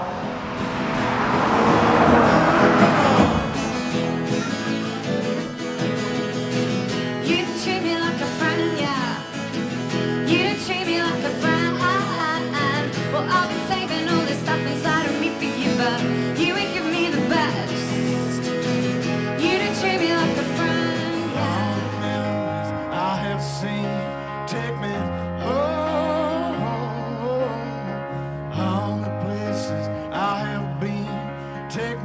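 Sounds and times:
strummed acoustic guitar: 0.0 - 32.0
woman singing: 7.1 - 18.5, 19.1 - 23.2, 25.4 - 27.9.

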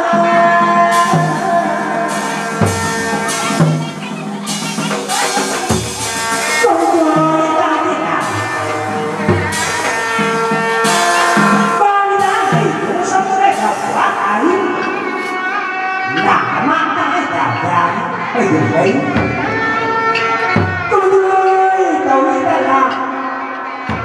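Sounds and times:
wavering melodic lines: 0.0 - 23.1
drums and hand percussion: 0.0 - 24.0.

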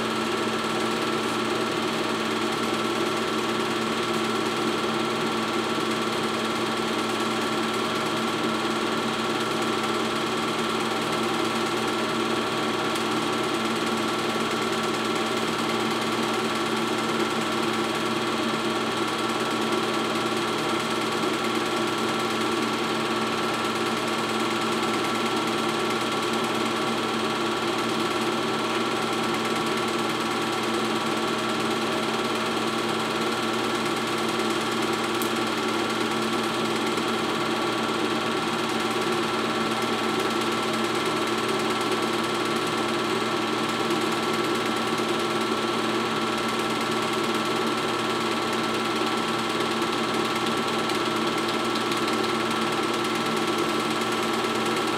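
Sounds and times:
film projector whirring: 0.0 - 54.9.

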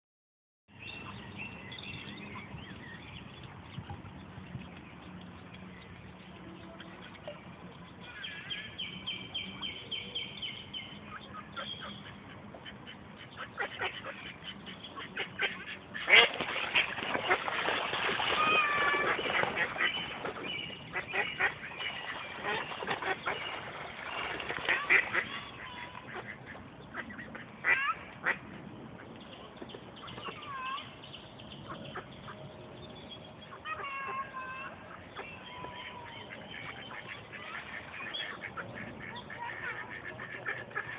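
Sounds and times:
ducks quacking: 11.1 - 30.9, 33.5 - 40.9
splashing and wing-flapping on water: 15.0 - 28.7, 34.7 - 40.9.

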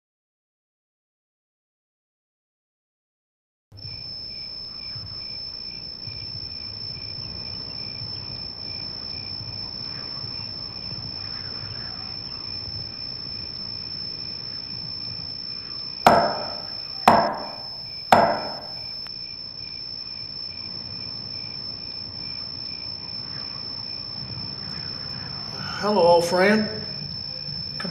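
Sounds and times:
night insects droning: 3.8 - 27.9
knocks on wooden door: 16.1 - 18.8.

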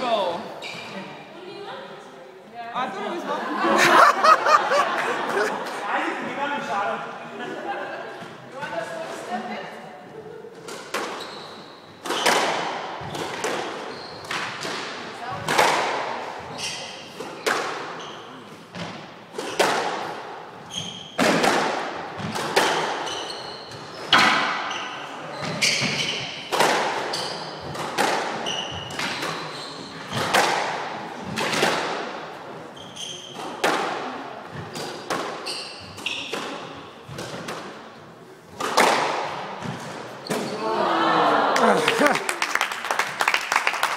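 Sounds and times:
shoes squeaking on wooden floor: 0.0 - 1.2, 10.6 - 12.4, 13.0 - 14.6, 16.4 - 17.4, 20.6 - 21.3, 23.0 - 26.4, 28.4 - 30.3, 32.7 - 33.6, 34.5 - 37.1
squash ball hitting rackets and walls: 10.6 - 40.6.

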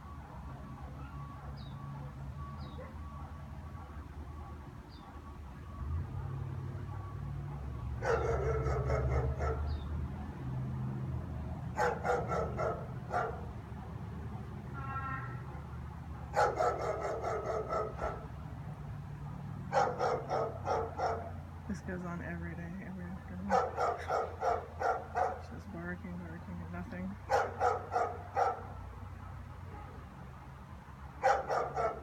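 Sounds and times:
dogs barking: 0.7 - 5.4, 6.2 - 10.3, 11.7 - 14.6, 15.4 - 18.4, 19.3 - 21.5, 23.4 - 25.6, 27.2 - 30.1, 31.1 - 32.0.

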